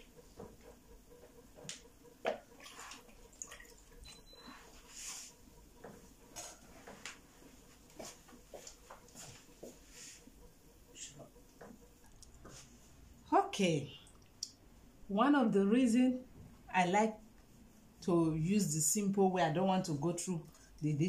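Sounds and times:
water dripping: 0:02.2 - 0:04.1.

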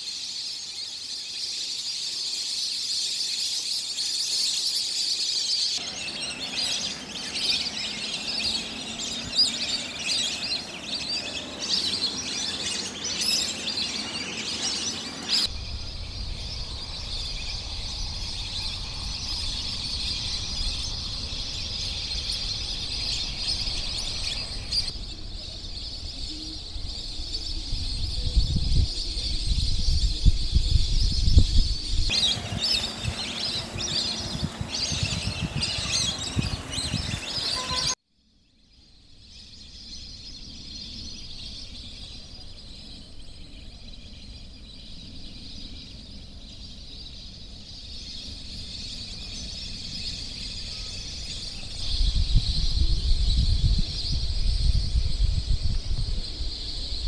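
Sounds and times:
birds chirping: 0:00.0 - 0:38.0, 0:39.1 - 0:57.0
low rumble: 0:15.4 - 0:26.7.

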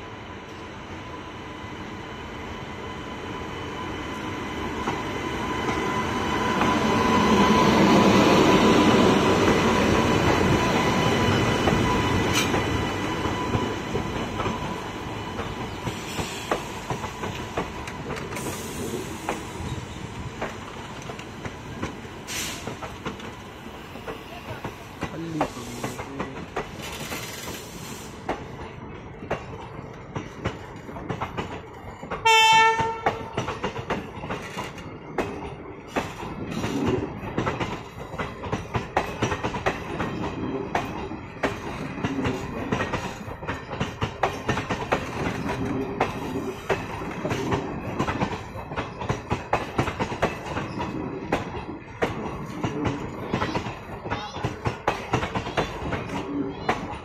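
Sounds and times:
train wheels clickety-clack: 0:04.7 - 0:57.0
train horn blast: 0:32.2 - 0:33.3.

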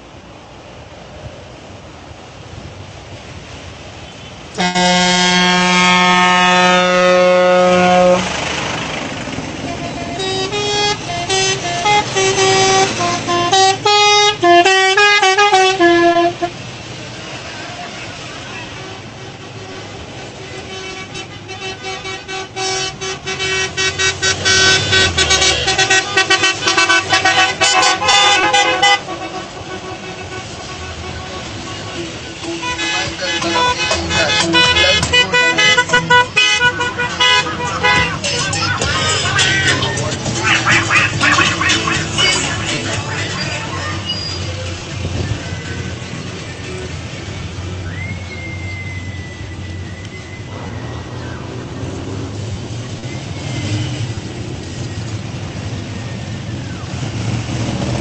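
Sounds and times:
vehicle traffic passing: 0:00.0 - 0:58.0
long vehicle horn blast: 0:04.2 - 0:08.4, 0:09.6 - 0:16.6, 0:18.7 - 0:38.6.

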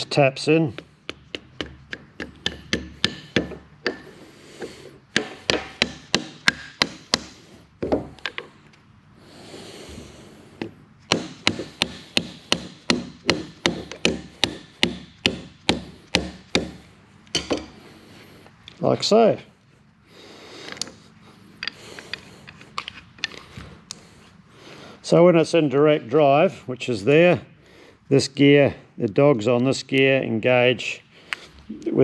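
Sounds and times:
plastic mallet tapping steel shaft: 0:00.8 - 0:04.0, 0:05.1 - 0:08.4, 0:10.6 - 0:16.8.

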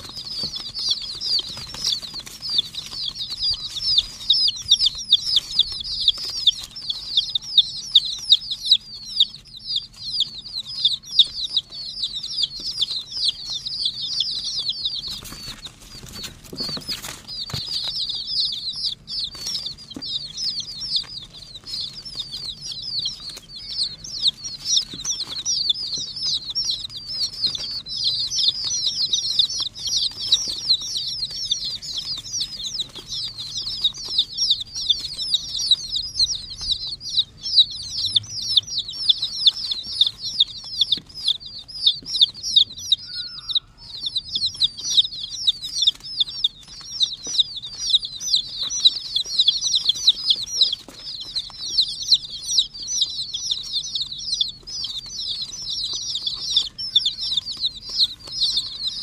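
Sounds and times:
chicks peeping: 0:00.0 - 0:59.0.

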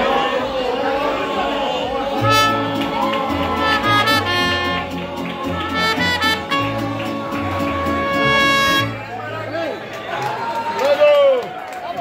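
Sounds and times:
bright held melody: 0:02.2 - 0:09.0
strummed guitar: 0:02.2 - 0:09.2
bass line: 0:02.2 - 0:09.3.

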